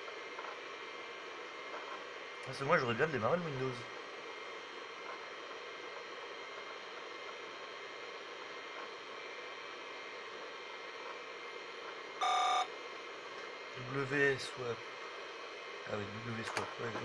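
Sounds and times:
hard drive spinning: 0.0 - 12.7
computer fan whirring: 0.0 - 17.0.

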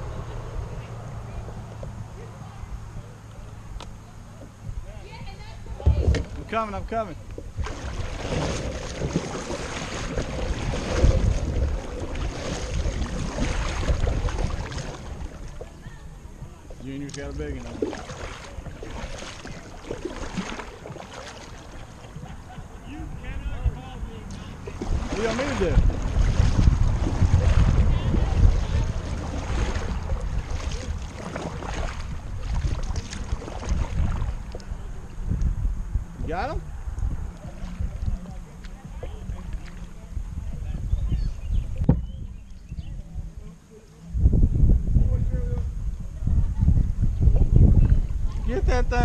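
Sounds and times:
wind buffeting microphone: 0.0 - 49.0
paddle splashing in water: 7.2 - 16.0, 16.6 - 22.7, 24.3 - 35.2, 37.2 - 40.2.

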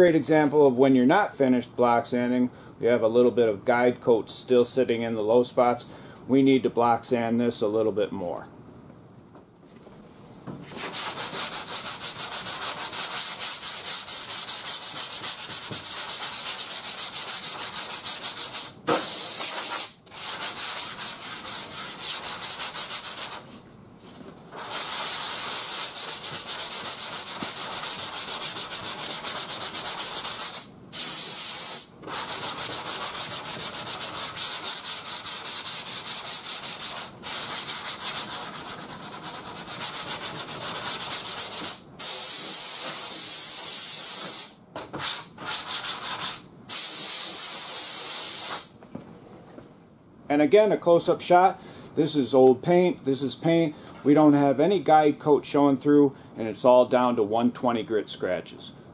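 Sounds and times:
sandpaper scratching: 10.7 - 23.6, 24.5 - 48.7.

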